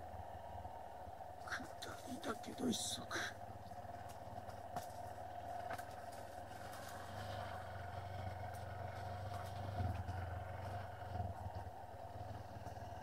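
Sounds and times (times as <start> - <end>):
motorcycle engine running: 0.0 - 13.0
clicks and knocks from bike: 3.6 - 7.5.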